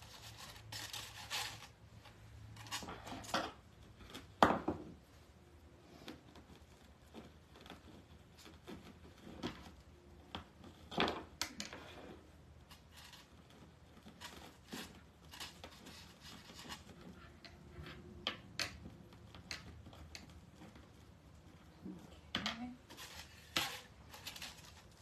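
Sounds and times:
mesh ribbon crinkling: 0:22.8 - 0:25.0.

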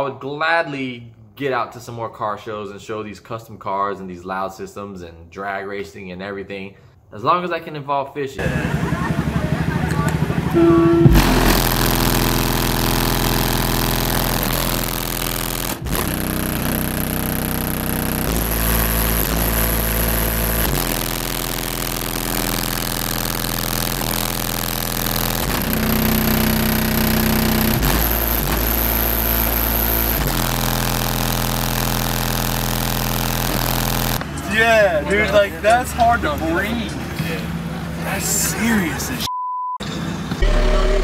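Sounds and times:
deep bass notes from subwoofers: 0:08.4 - 0:34.4, 0:40.4 - 0:41.0.

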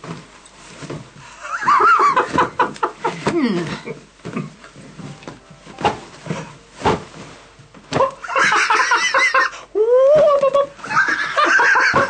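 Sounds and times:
people laughing: 0:08.2 - 0:09.6, 0:10.4 - 0:12.0.

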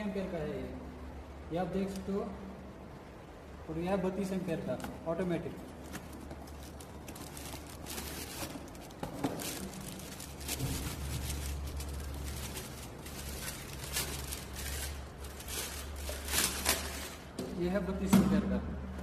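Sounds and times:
plastic wrapping crinkling: 0:04.2 - 0:17.4.

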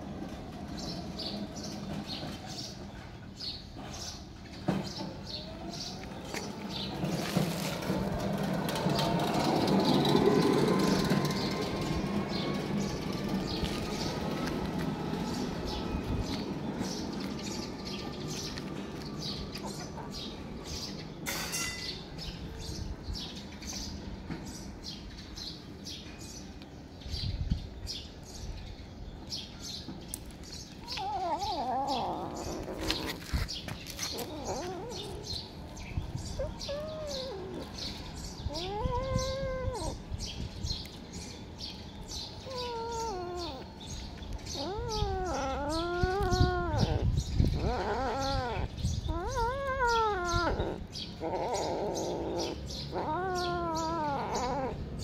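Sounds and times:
kitten yowling: 0:30.8 - 0:33.2, 0:34.1 - 0:35.4, 0:36.2 - 0:40.0, 0:42.4 - 0:55.0.

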